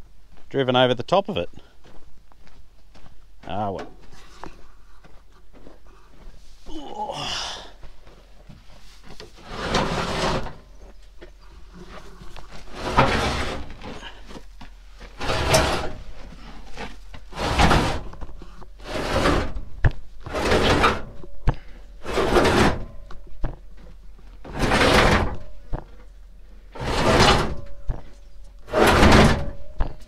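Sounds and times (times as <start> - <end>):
plastic tote scraping across dirt: 8.8 - 21.2, 21.9 - 23.2, 24.4 - 26.0, 26.6 - 29.8.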